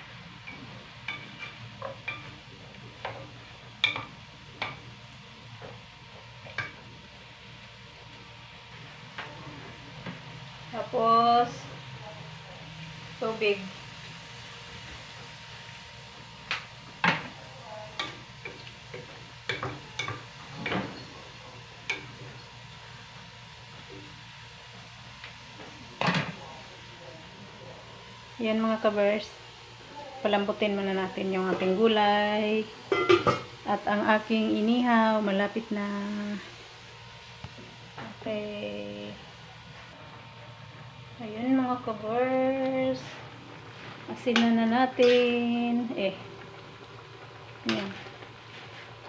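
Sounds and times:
vegetables sizzling: 10.1 - 39.9, 41.0 - 49.0.

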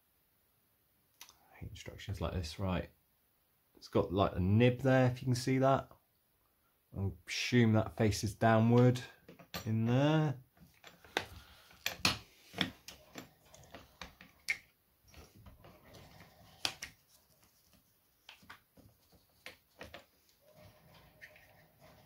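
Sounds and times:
clicks and knocks of metal parts: 8.8 - 9.9, 10.6 - 16.9.

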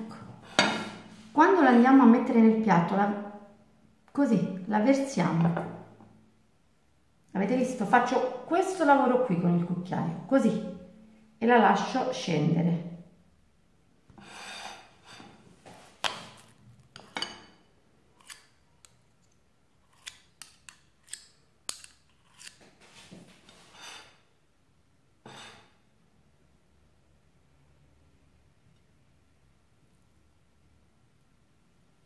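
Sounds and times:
metal spoons scraping: 14.2 - 15.4, 16.4 - 17.6, 18.2 - 19.0, 19.8 - 23.0, 23.6 - 24.2.

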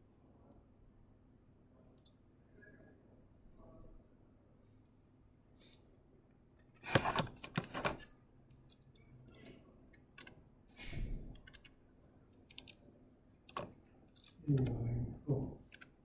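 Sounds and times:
sharp clicks and knocks: 13.5 - 14.5.

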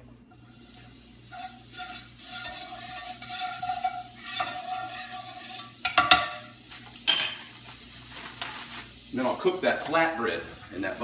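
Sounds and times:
butter sizzling in a skillet: 0.3 - 11.0
spatula scraping a pan: 0.5 - 9.0
spatula clacking against pan: 1.3 - 6.5.

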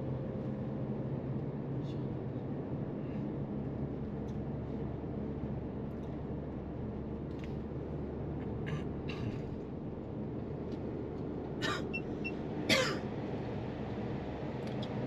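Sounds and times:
road and engine hum in car cabin: 0.0 - 15.0
person clearing throat: 11.6 - 11.9, 12.7 - 13.0.

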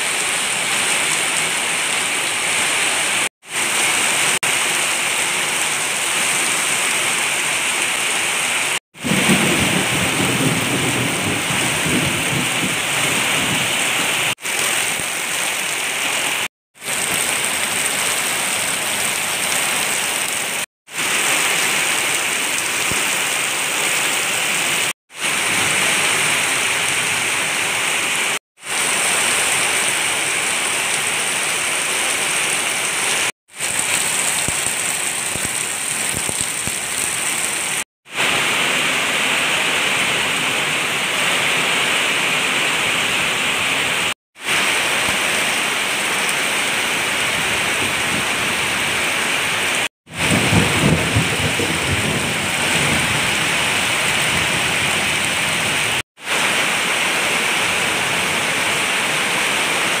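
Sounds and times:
heavy rain pouring: 0.0 - 60.0.

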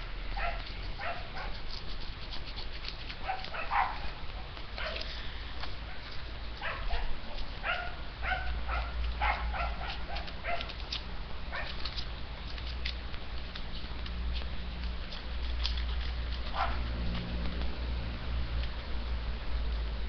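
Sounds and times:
dog barking: 0.4 - 1.6, 3.2 - 4.2, 4.8 - 5.1, 6.6 - 10.7, 11.5 - 11.8, 16.5 - 16.9.

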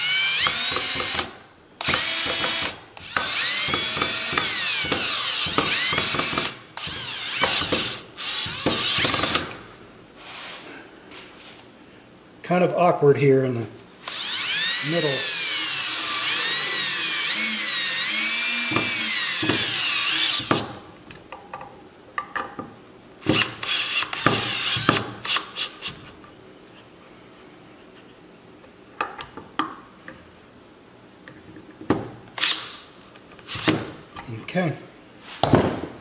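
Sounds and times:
cordless drill whining into wood: 0.0 - 9.5, 13.8 - 20.6, 23.2 - 26.1, 32.4 - 32.7
tool and wood knocks: 18.7 - 19.7, 35.4 - 36.0.

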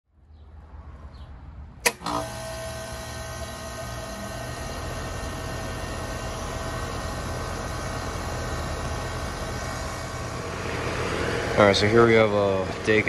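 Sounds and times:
air conditioner compressor and fan hum: 1.8 - 13.0.

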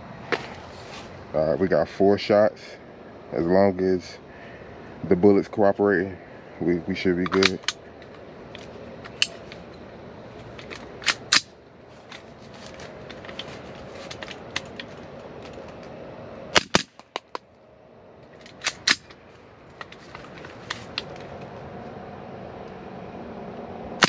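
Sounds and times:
sharp rifle shots: 16.6 - 17.0.

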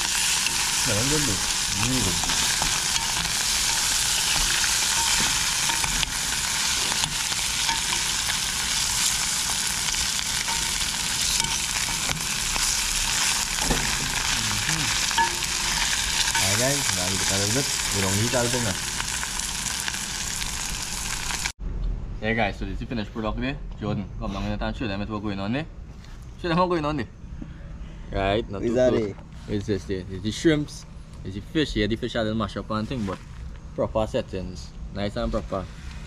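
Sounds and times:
metal spoon scraping a pan: 0.0 - 18.1
seafood sizzling in hot oil: 0.0 - 21.5.

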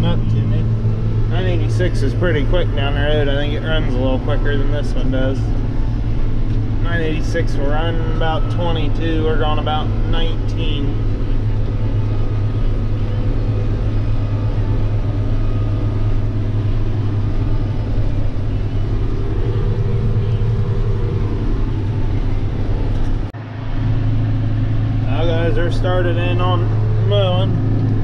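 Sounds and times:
tractor diesel engine drone: 0.0 - 28.0.

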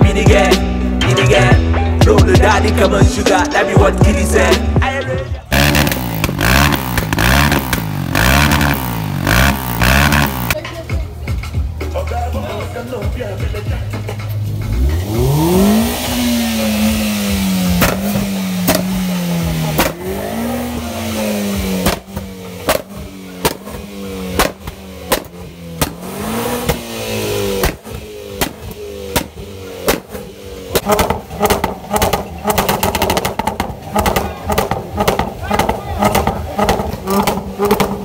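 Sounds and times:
car exhaust revving: 0.0 - 10.6, 12.8 - 38.0
exhaust backfire pops: 5.6 - 10.6, 17.6 - 20.2, 21.4 - 38.0.

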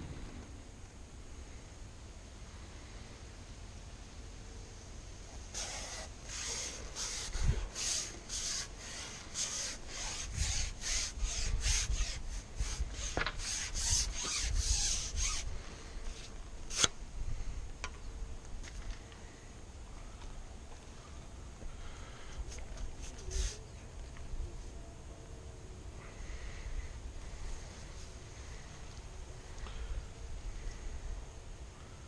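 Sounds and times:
fishing pole rubbing through hands: 5.4 - 15.5, 16.1 - 16.9, 22.8 - 23.6.

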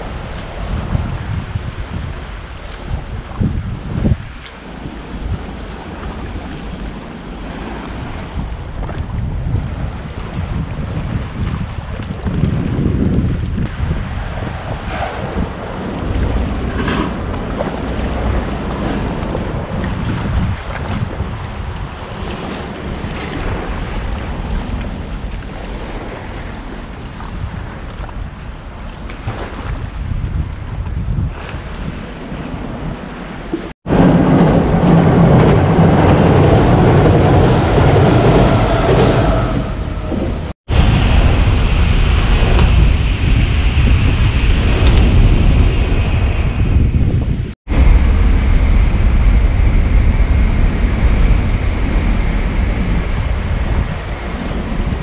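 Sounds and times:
water splashes: 0.0 - 55.0
waves washing on shore: 0.0 - 55.0
wind buffeting microphone: 0.0 - 55.0
train rumbling over bridge: 13.5 - 26.8, 33.4 - 55.0.

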